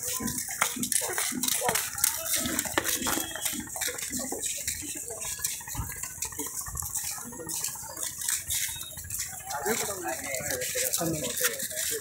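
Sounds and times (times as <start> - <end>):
voices of people walking: 0.0 - 12.0.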